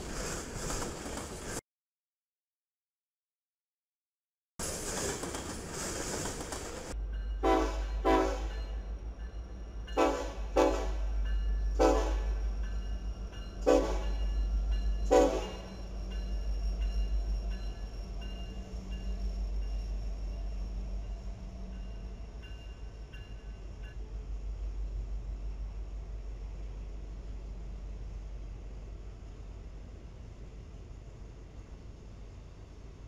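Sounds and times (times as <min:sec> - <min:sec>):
freight cars rolling by: 0:00.0 - 0:01.6, 0:04.6 - 0:29.3
locomotive engines rumbling: 0:04.6 - 0:33.0
locomotive horn toots: 0:07.4 - 0:08.8, 0:10.0 - 0:12.5, 0:13.6 - 0:14.2, 0:15.0 - 0:15.7.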